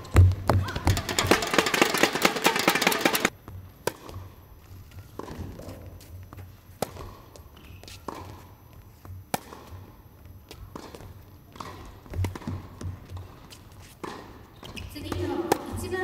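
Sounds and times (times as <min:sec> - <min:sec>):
racket striking tennis ball: 0:00.0 - 0:04.3, 0:06.7 - 0:08.5, 0:09.3 - 0:09.9, 0:10.5 - 0:16.0
ball bouncing on court: 0:00.0 - 0:04.4, 0:05.0 - 0:05.8, 0:06.4 - 0:16.0.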